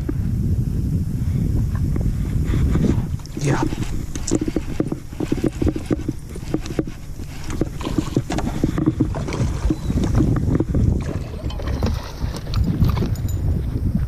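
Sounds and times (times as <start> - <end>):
wind on microphone: 0.0 - 14.0
water slapping against boat hull: 3.2 - 13.2.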